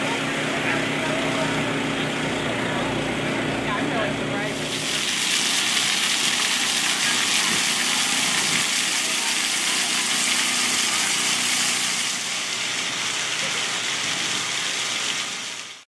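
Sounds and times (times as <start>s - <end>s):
crowd chatter: 0.0s - 4.7s, 6.8s - 11.6s
fountain jets splashing: 0.0s - 15.9s.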